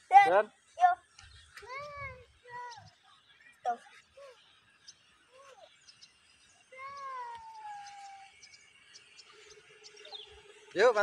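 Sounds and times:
faint animal calls: 6.7 - 8.6.

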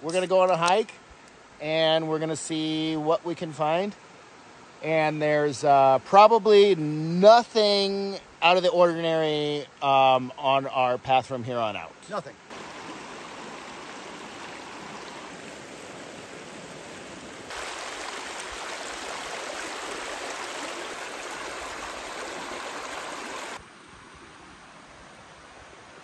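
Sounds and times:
river water rushing over rocks: 12.5 - 24.0.

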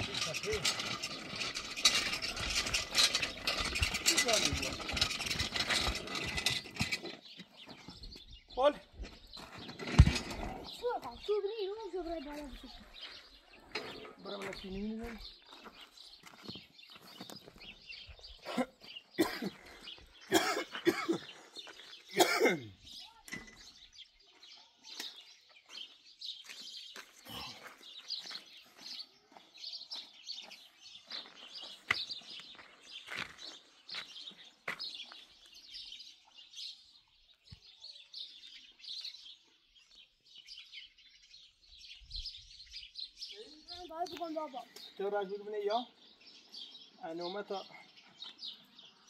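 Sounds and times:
small birds chirping: 0.0 - 49.0.

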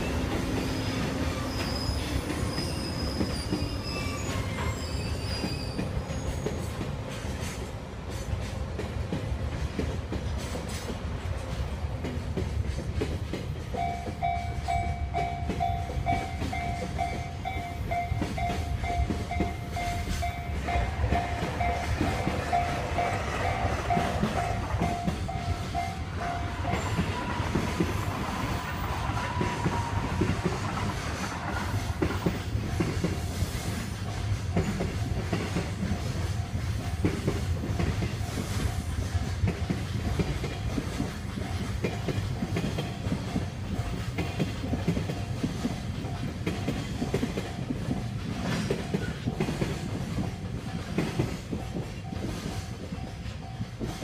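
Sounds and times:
freight train rumbling: 0.0 - 54.0
wheels clicking over rail joints: 0.0 - 54.0.

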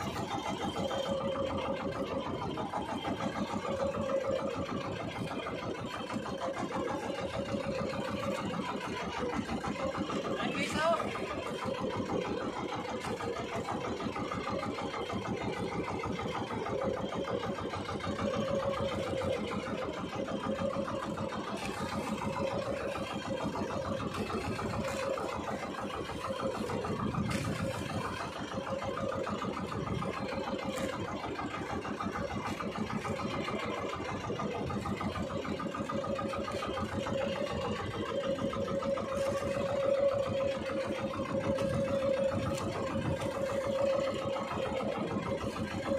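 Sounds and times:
boat engine running: 0.0 - 45.9.

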